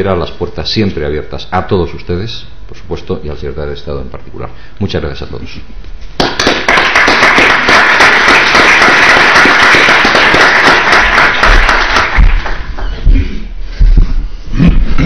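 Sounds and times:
audience applauding: 0:06.2 - 0:13.0
low thumps: 0:12.2 - 0:15.0.

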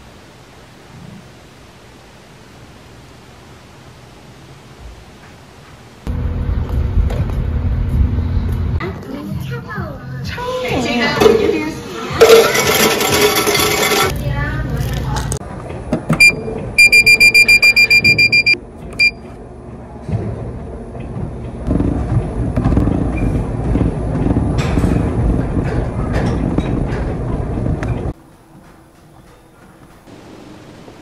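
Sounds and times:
exercise machine whirring rumble: 0:05.9 - 0:08.8, 0:12.0 - 0:28.6
short electronic beeps: 0:16.2 - 0:19.2.

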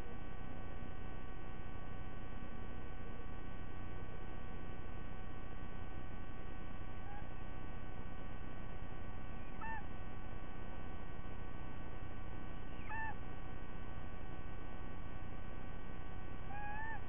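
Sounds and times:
background hum: 0:00.0 - 0:17.0
eagle squealing calls: 0:09.6 - 0:09.9, 0:12.7 - 0:13.2, 0:16.5 - 0:17.0.

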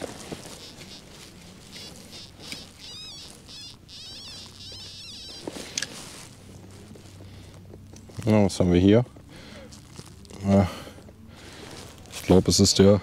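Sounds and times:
high warbling chirps: 0:00.4 - 0:05.6.

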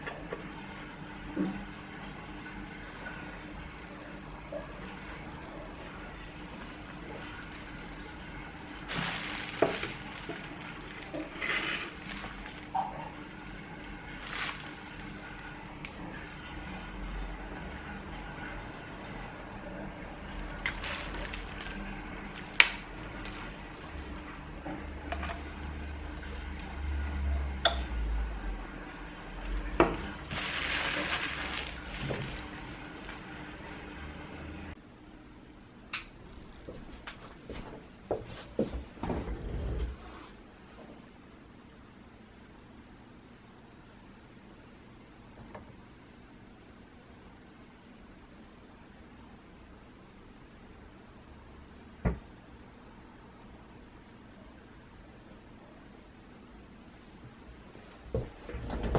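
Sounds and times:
plastic wrapping crinkling: 0:08.8 - 0:16.0, 0:20.3 - 0:23.8, 0:29.4 - 0:33.6.

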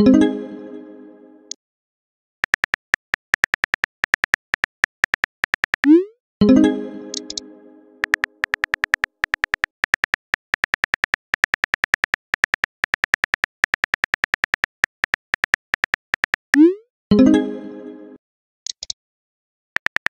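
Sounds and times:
phone keyboard typing clicks: 0:02.4 - 0:06.0, 0:07.1 - 0:07.4, 0:08.0 - 0:16.6, 0:18.7 - 0:19.0, 0:19.8 - 0:20.0.

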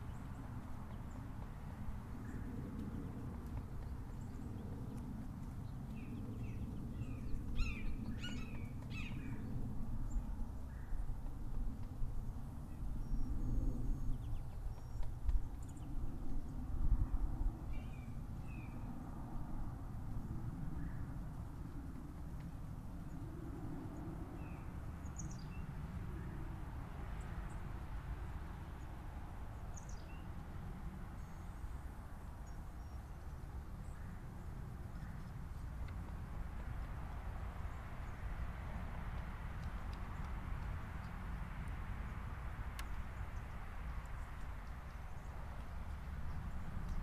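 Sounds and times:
bird chirping: 0:05.6 - 0:09.5.

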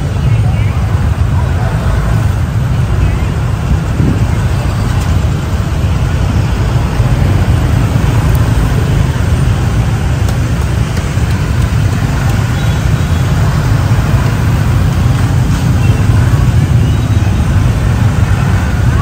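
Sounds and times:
road traffic rumble: 0:00.0 - 0:19.0.

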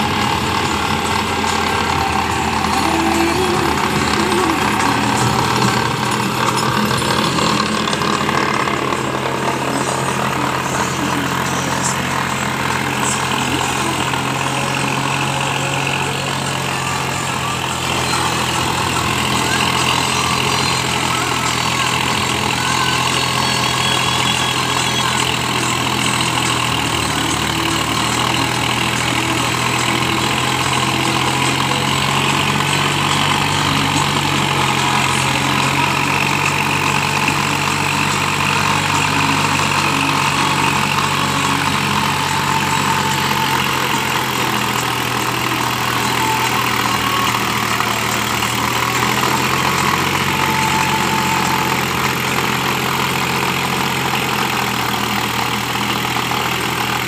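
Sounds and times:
tractor diesel engine under load: 0:00.0 - 0:57.0.

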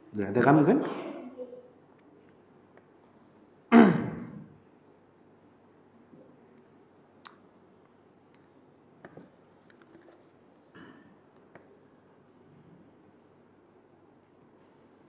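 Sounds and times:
faint clicks and taps at a desk: 0:11.3 - 0:11.8.

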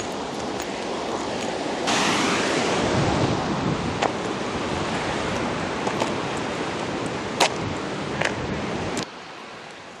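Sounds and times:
river water rushing over weir: 0:00.0 - 0:10.0
steady hiss: 0:00.0 - 0:10.0.

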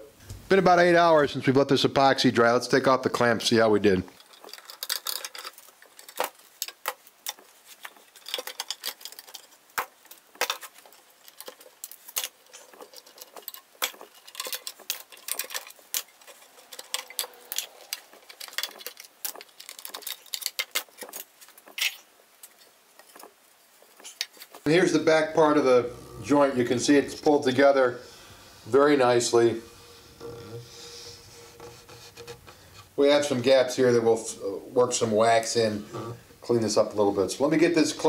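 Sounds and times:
metal clamps clicking and clattering: 0:04.1 - 0:23.2.

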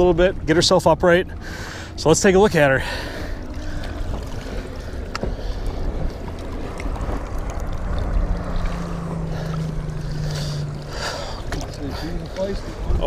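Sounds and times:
boat engine hum: 0:00.0 - 0:13.0
wind: 0:00.0 - 0:13.0
lapping water: 0:02.6 - 0:13.0.

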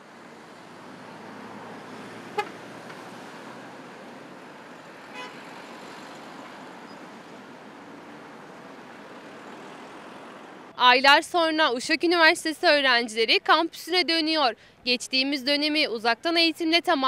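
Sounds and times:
street traffic noise: 0:00.0 - 0:17.0
vehicle horn toot: 0:02.3 - 0:02.6, 0:05.1 - 0:05.5.

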